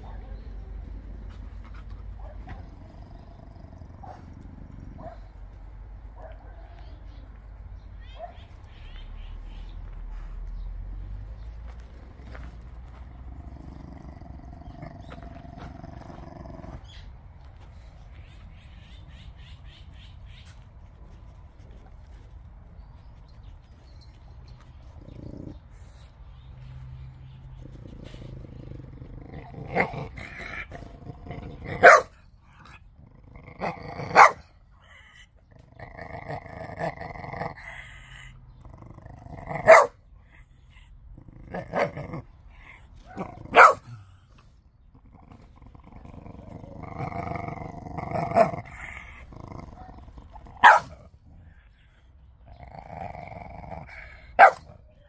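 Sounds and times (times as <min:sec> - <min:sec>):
dog growling: 0:00.0 - 0:05.4, 0:11.8 - 0:17.1, 0:24.8 - 0:25.9, 0:27.4 - 0:54.7
dog barking sharply: 0:50.6 - 0:51.0.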